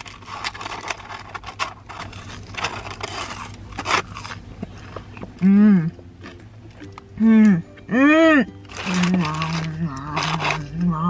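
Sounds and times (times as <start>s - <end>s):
paper wrapper rustling: 0.0s - 4.9s, 8.6s - 11.0s
person chewing fries: 0.0s - 11.0s
person humming: 5.4s - 6.1s, 7.1s - 11.0s.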